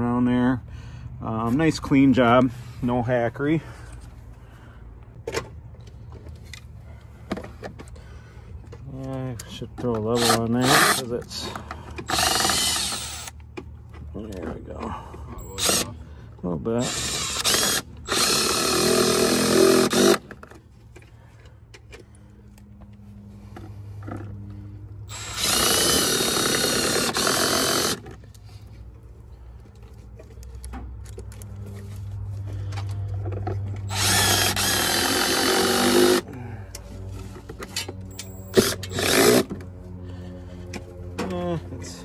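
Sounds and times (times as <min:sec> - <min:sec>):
impact driver driving screws: 0:10.2 - 0:11.1, 0:12.0 - 0:13.4, 0:15.4 - 0:15.9, 0:16.8 - 0:20.4, 0:25.1 - 0:28.2, 0:33.8 - 0:36.2, 0:37.7 - 0:39.5.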